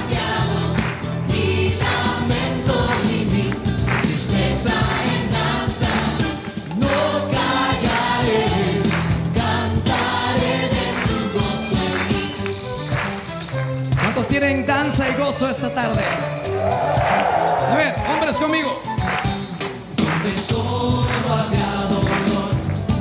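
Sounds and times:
mixed choir singing: 0.0 - 12.4, 20.1 - 23.0
band with steady beat: 0.0 - 23.0.

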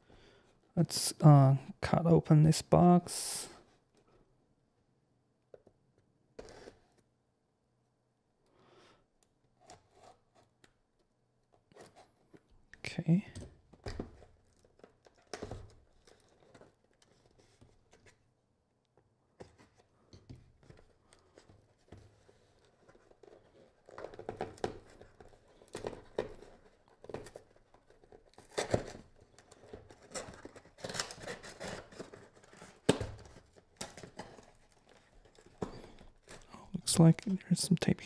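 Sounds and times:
cardboard tearing and rustling: 21.2 - 36.5.

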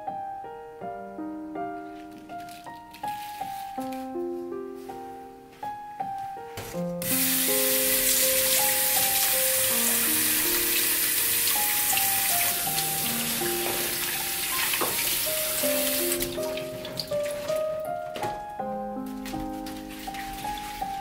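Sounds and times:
soft piano music: 0.0 - 21.0
greens rinsed by hand: 7.0 - 21.0
tap water running into bowl: 7.1 - 17.6.

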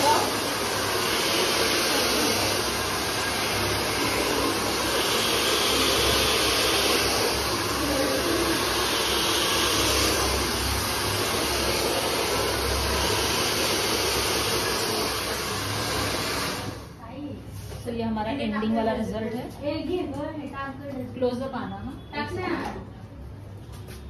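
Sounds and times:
hair dryer running: 0.0 - 17.0.

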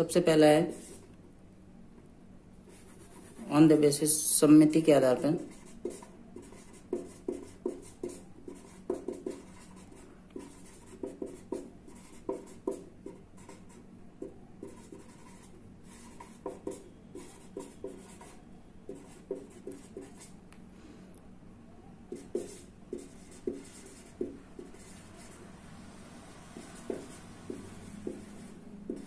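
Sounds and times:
marker pen writing: 5.3 - 20.4, 22.1 - 25.5, 26.4 - 29.0.

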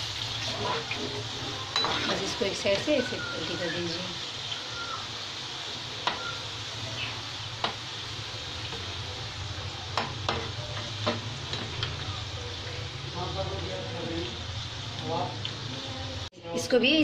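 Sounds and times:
food sizzling in hot oil: 0.0 - 17.0
metal spoon clinking on pan: 1.7 - 2.8.

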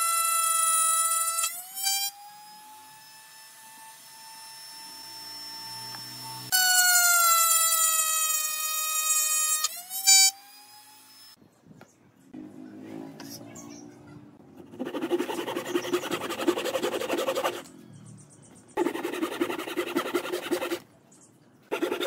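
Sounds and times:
router bit cutting wood: 0.4 - 10.4
router high whine: 4.0 - 6.8.

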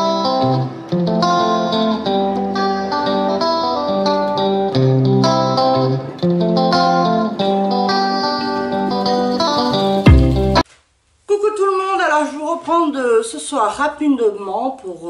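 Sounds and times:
guitar plucked melody: 0.0 - 10.6.

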